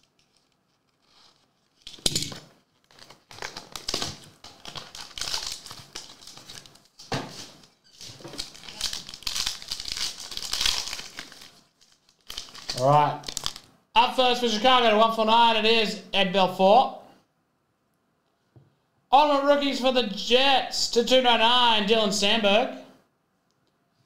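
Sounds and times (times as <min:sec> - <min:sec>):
plastic shrink-wrap crinkling and tearing: 0:00.0 - 0:02.0, 0:02.6 - 0:13.7.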